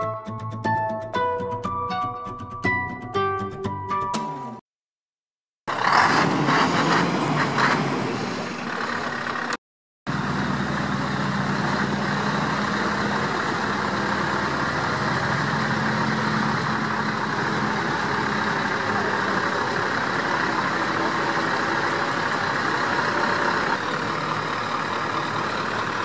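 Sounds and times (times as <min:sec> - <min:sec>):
truck engine running: 0:05.7 - 0:26.0.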